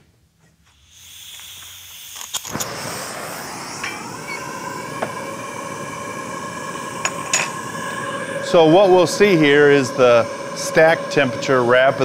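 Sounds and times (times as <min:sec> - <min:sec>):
gas hissing: 0:00.6 - 0:12.0
flame rushing: 0:00.7 - 0:12.0
torch igniter clicks: 0:01.2 - 0:05.2
steady tone: 0:03.0 - 0:12.0.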